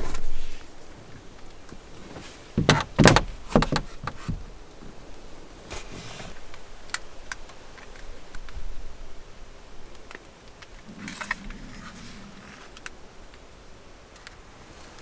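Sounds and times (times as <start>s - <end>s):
dull thumps and knocks: 2.6s - 4.4s.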